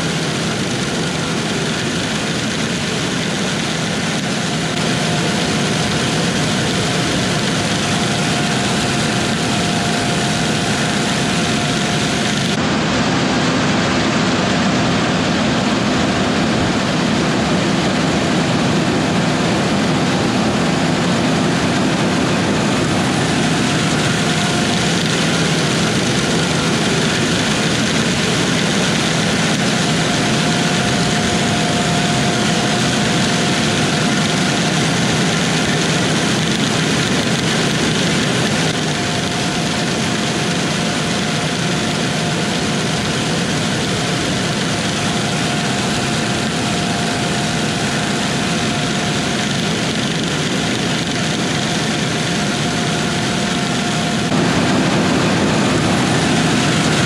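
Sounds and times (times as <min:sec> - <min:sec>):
faint machine whine: 0:00.0 - 0:57.0
machine running: 0:00.0 - 0:57.0.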